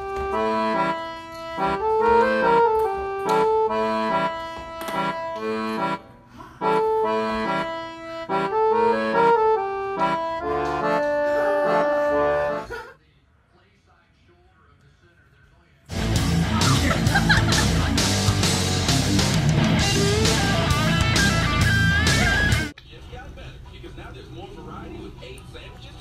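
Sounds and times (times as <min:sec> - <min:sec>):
instrumental background music: 0:00.0 - 0:12.7, 0:15.9 - 0:22.7.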